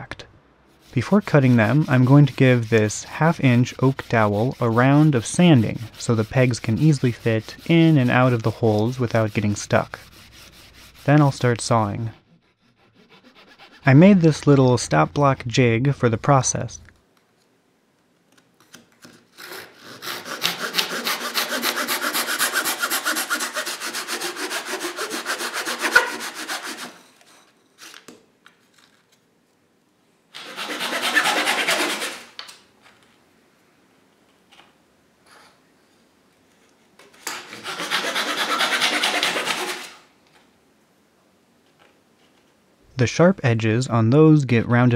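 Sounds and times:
hand saw cutting wood: 0:00.8 - 0:15.0, 0:19.3 - 0:27.4, 0:30.4 - 0:32.4, 0:37.3 - 0:40.0.

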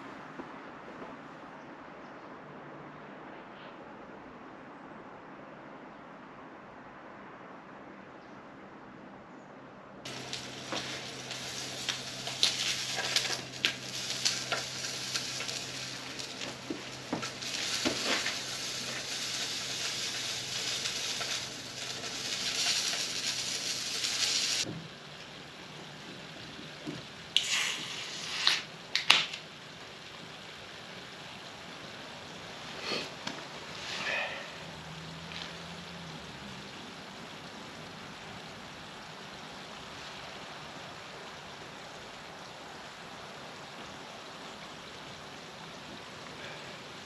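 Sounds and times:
food sizzling in a pan: 0:10.1 - 0:37.4.

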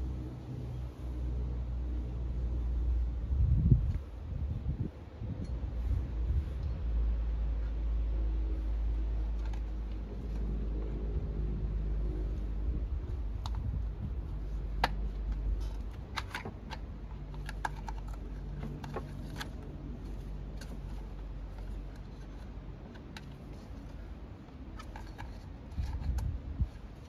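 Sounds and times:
steady low rumble: 0:00.0 - 0:27.0
plastic clicks and rattles: 0:14.8 - 0:26.9.

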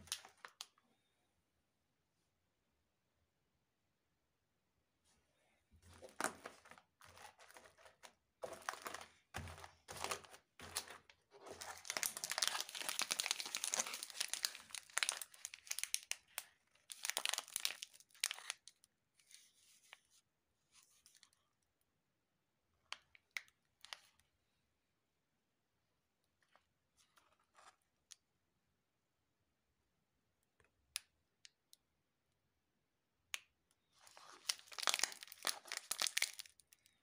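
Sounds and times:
plastic wrappers crinkling: 0:00.0 - 0:00.8, 0:05.9 - 0:18.9, 0:34.0 - 0:36.9.

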